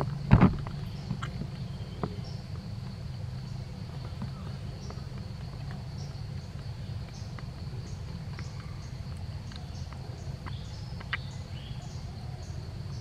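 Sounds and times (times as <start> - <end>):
steady low hum: 0.0 - 13.0
thump: 0.3 - 0.8.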